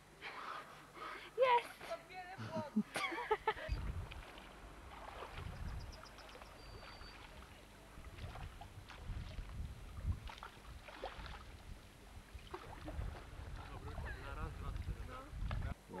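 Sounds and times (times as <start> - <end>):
low microphone rumbles: 3.6 - 6.1, 7.8 - 10.8, 11.4 - 15.9
kayak paddle splashing water: 3.8 - 15.0.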